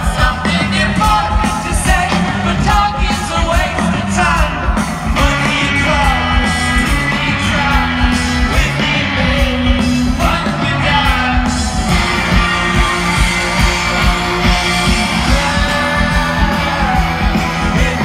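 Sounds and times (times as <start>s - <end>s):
lead singer: 0.0s - 18.0s
live rock band playing: 0.0s - 18.0s.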